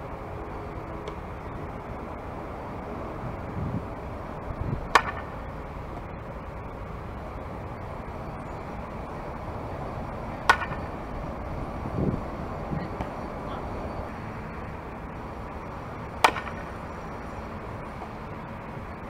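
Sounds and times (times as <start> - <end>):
outdoor background noise: 0.0 - 19.0
bat cracking a softball: 4.8 - 5.4, 10.4 - 10.9, 16.2 - 16.8.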